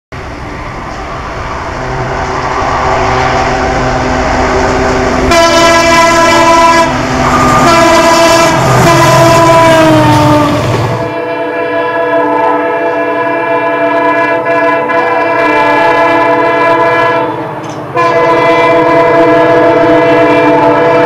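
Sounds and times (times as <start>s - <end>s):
diesel locomotive engine running: 0.1s - 21.0s
locomotive horn blasts: 1.8s - 21.0s.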